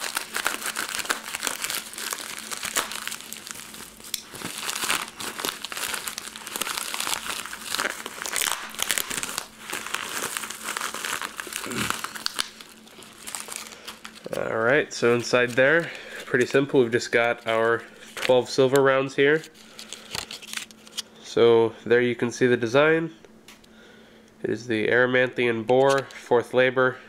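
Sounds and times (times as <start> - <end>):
plastic mailer crinkling: 0.0 - 21.0.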